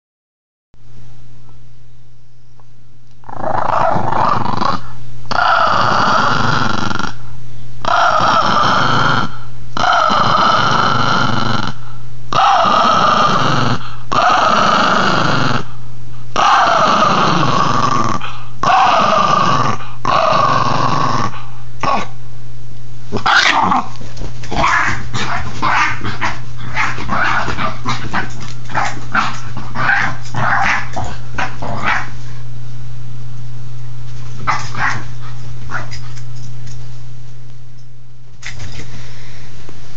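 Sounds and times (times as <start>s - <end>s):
dog growling: 3.2s - 22.2s, 23.1s - 32.4s, 34.4s - 36.3s
dog yipping and barking: 24.6s - 26.0s, 34.5s - 35.1s.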